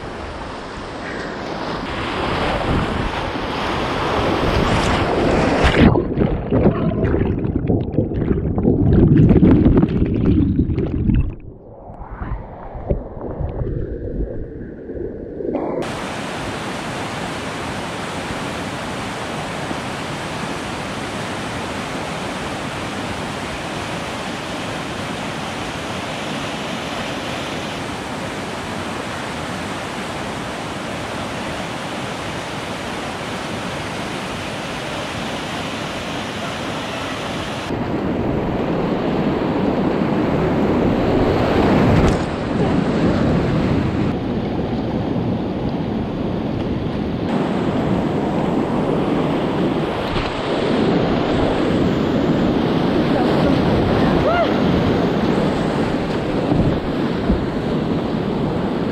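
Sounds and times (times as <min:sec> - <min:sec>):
rushing whitewater: 0:15.8 - 0:38.0.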